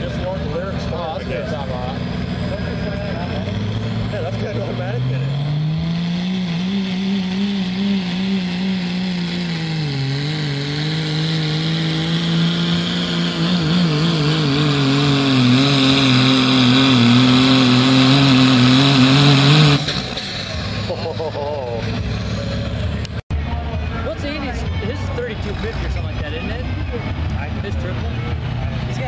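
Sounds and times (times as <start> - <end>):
diesel engine at high revs: 0.0 - 29.0.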